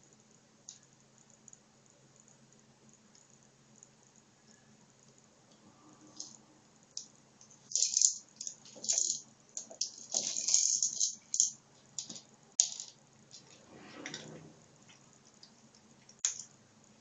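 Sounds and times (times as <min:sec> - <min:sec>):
kibble rattling in plastic ball: 0:07.6 - 0:13.6.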